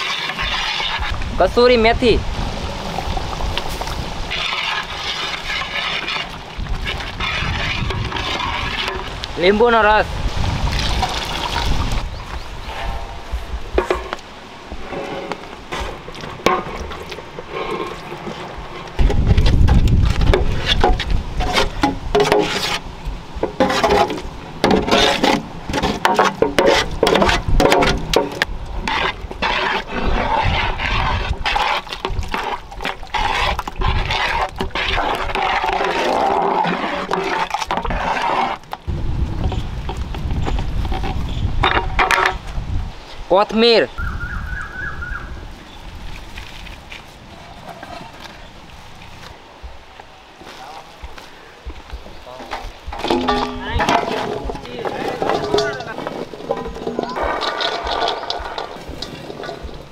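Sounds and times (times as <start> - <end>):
metal utensil scraping a pan: 0.0 - 1.2, 3.7 - 10.0, 20.1 - 38.7, 52.5 - 59.9.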